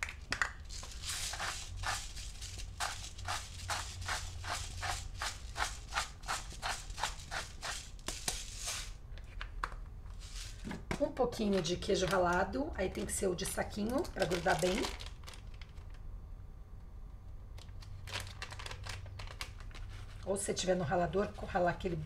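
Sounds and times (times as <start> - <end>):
salt grinder crunching: 0.6 - 8.8.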